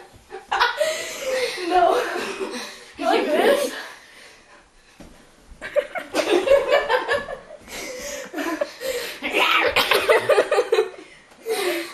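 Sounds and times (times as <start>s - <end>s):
people laughing hard: 5.7s - 8.9s, 9.6s - 11.0s.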